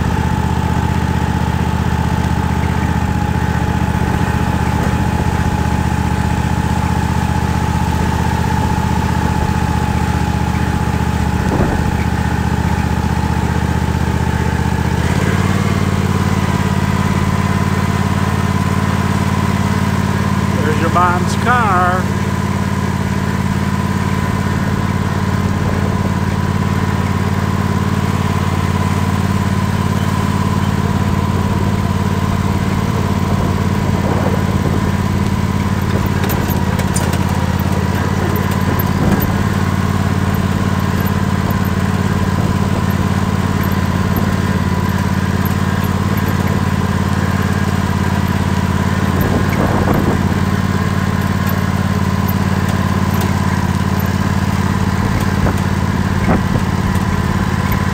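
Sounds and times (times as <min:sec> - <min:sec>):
tractor engine running: 0:00.0 - 0:57.9
thin steady whine: 0:20.5 - 0:22.2.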